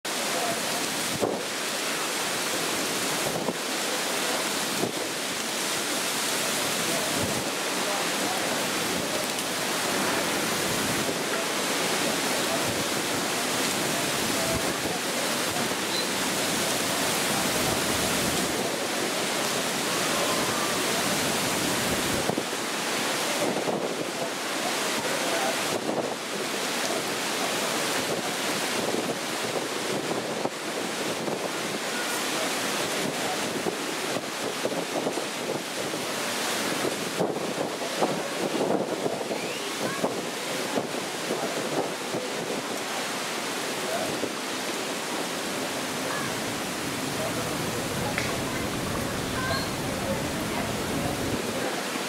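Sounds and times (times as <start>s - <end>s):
steady rushing noise: 44.7s - 52.0s.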